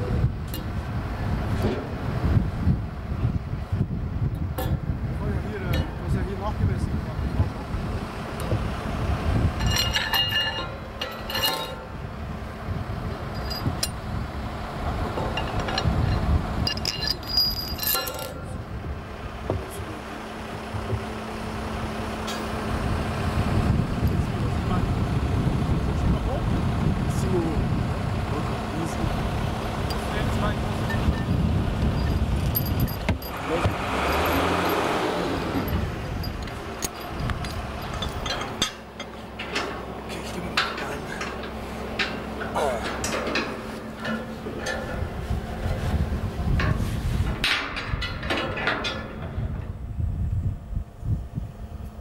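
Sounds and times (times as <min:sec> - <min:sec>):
crane engine rumbling: 0:00.0 - 0:52.0
steady low hum: 0:00.0 - 0:52.0
ringing metal clinks: 0:09.6 - 0:11.9, 0:13.3 - 0:14.0, 0:15.4 - 0:18.6, 0:32.0 - 0:39.8.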